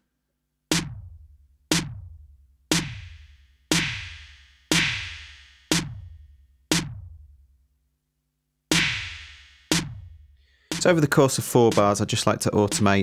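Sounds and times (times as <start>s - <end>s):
snare hits with reverb: 0.7s - 1.0s, 2.7s - 6.0s, 6.7s - 7.0s, 8.7s - 10.1s, 10.7s - 10.9s.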